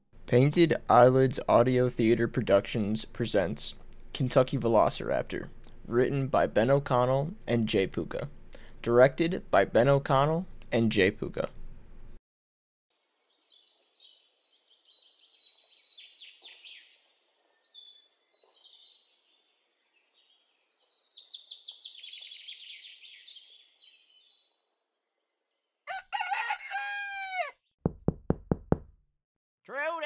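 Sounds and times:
birds chirping: 13.3s - 24.8s
rooster crowing: 25.9s - 27.6s.

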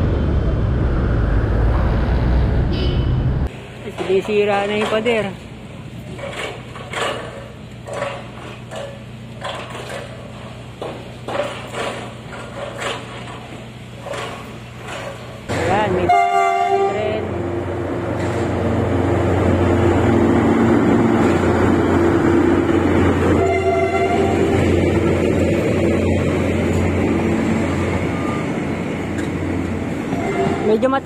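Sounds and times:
locomotive engine running: 0.0s - 31.0s
locomotive horn blast: 15.9s - 17.4s, 23.3s - 24.8s, 30.1s - 30.7s.

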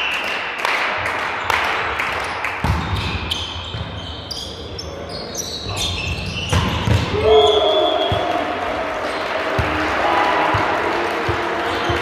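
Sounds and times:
volleyball bouncing on floor: 2.6s - 3.9s, 6.5s - 7.2s
crowd applause: 8.0s - 12.0s.

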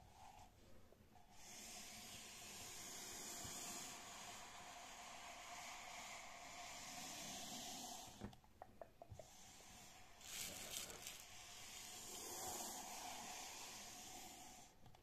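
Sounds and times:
fingertips scratching yarn cover: 10.2s - 11.4s.

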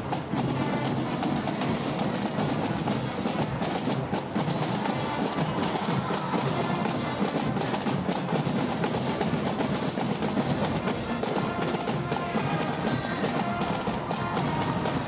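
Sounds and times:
trumpets: 0.0s - 9.7s, 10.3s - 15.0s
marching drum beat: 0.0s - 15.0s
saxophones: 10.7s - 15.0s.

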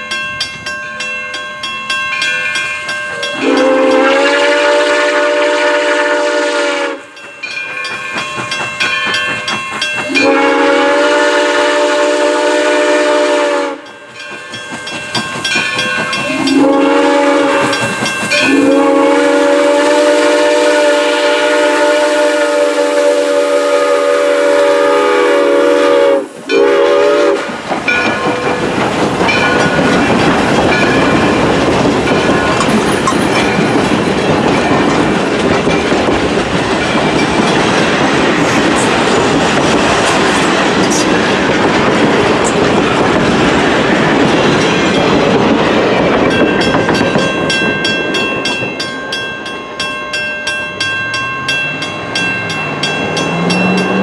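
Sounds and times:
train wheels clickety-clack: 2.5s - 50.7s
steam whistle blasts: 3.4s - 7.1s, 10.1s - 13.9s, 16.3s - 27.5s.

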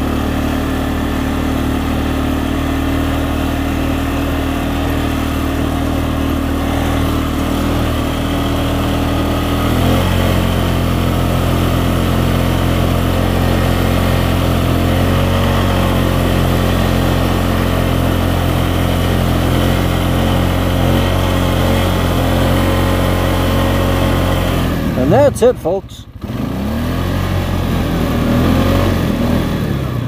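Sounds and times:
quad bike engine running: 0.0s - 30.0s.

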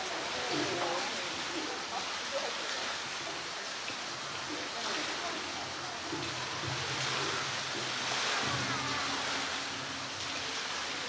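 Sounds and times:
faint murmur of voices: 0.0s - 11.0s
flowing water rushing: 0.0s - 11.0s.

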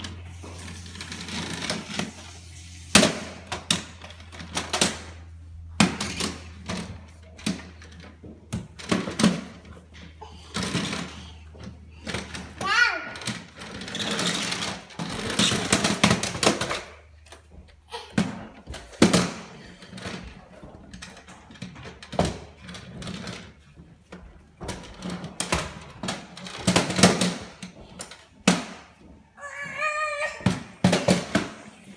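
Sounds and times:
toy vacuum rattling on stairs: 5.8s - 30.0s.

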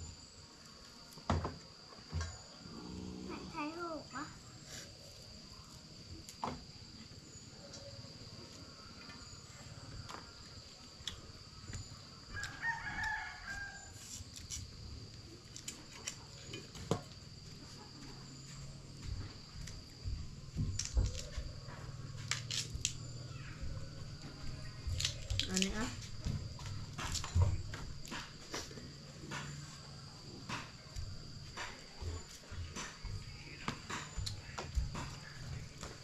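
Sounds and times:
rooster crowing: 12.3s - 14.0s.

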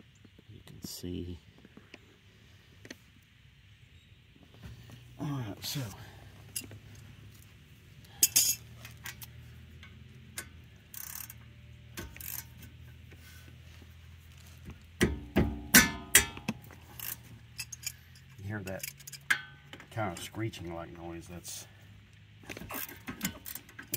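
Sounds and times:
bolt screeching: 8.2s - 9.2s
metal tool clinking on bolt: 8.2s - 11.4s, 15.0s - 20.3s.

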